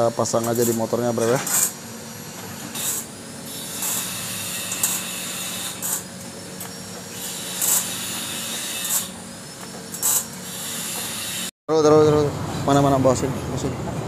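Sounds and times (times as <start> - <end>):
welding machine hum: 0.0 - 11.5
welding arc hissing: 0.5 - 6.2.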